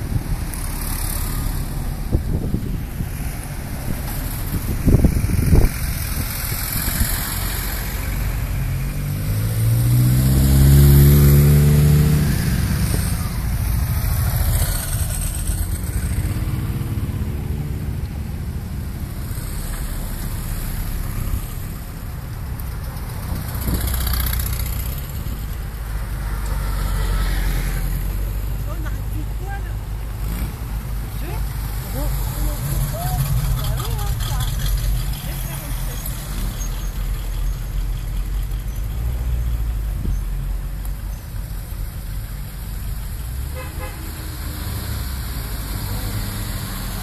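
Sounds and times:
jeep engine: 0.0s - 47.0s
motorcycle accelerating away: 4.8s - 18.0s
engine revving up: 8.9s - 17.9s.

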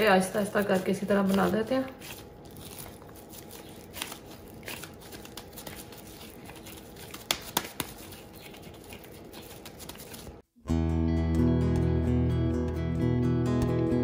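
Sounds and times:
gloved hands squishing minced meat: 0.0s - 10.4s.

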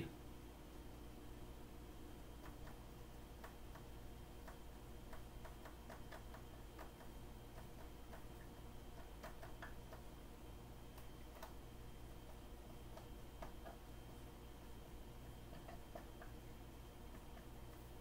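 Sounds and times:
low room hum: 0.0s - 18.0s
marker tapping on whiteboard: 15.4s - 16.4s.

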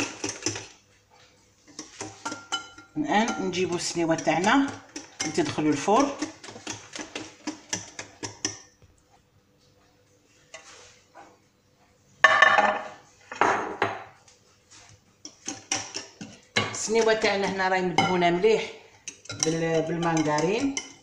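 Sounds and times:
whisk clinking against glass bowl: 1.8s - 8.7s, 19.1s - 21.0s.

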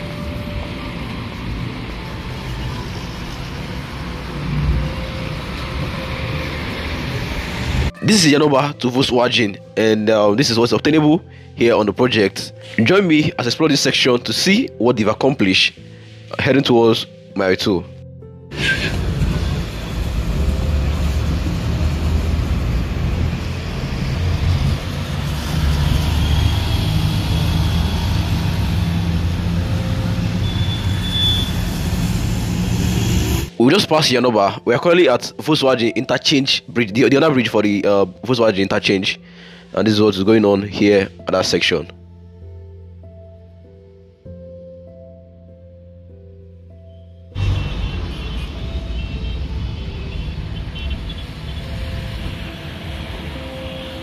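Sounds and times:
road traffic rumble and hiss: 0.0s - 7.9s, 18.5s - 33.6s, 47.4s - 54.0s.

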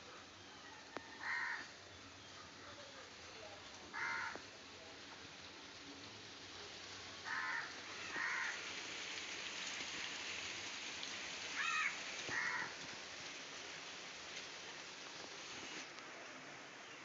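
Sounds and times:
soft steady hiss: 0.0s - 17.0s
crow cawing: 1.2s - 1.7s, 3.9s - 4.4s, 7.2s - 8.6s, 11.6s - 12.8s.

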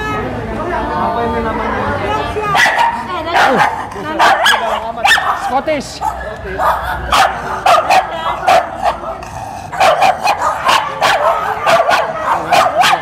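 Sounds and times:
dog yapping: 2.5s - 9.2s, 9.8s - 13.0s.

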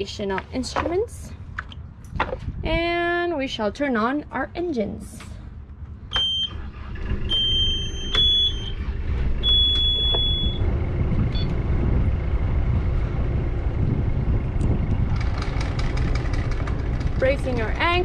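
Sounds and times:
diesel engine running: 4.2s - 18.0s.

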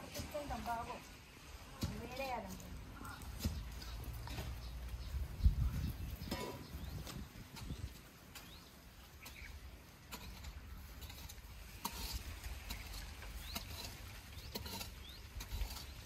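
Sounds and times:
hand tool scraping soil: 1.7s - 5.0s, 5.6s - 16.0s
bird chirps: 3.0s - 9.7s, 12.8s - 16.0s.

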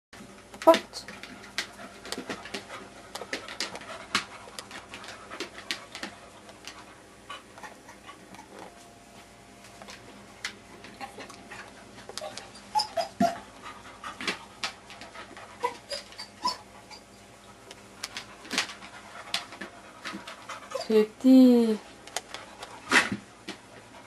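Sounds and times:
dog panting: 1.0s - 8.6s, 10.9s - 20.9s.

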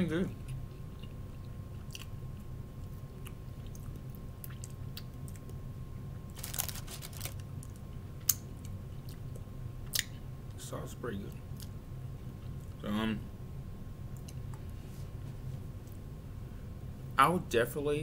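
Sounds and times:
person chewing: 0.4s - 5.5s
loud crunching: 6.4s - 7.4s.

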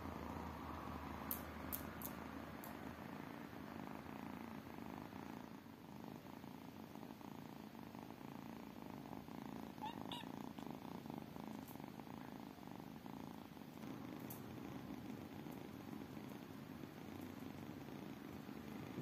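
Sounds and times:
kitten purring: 0.0s - 19.0s
kitten chirp: 9.8s - 10.4s.

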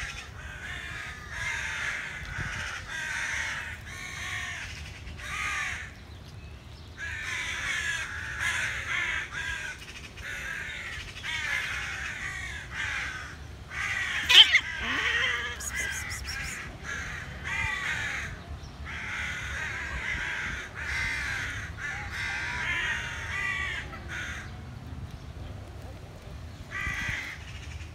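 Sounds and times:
crows cawing: 0.0s - 5.9s, 7.0s - 24.6s, 26.7s - 27.9s.

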